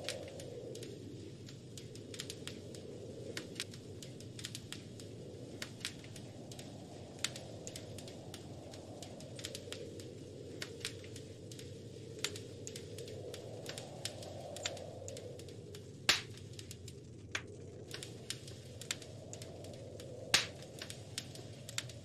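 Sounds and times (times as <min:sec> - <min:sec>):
wind gusts: 0:00.0 - 0:22.0
wood fire crackling and popping: 0:00.0 - 0:22.0.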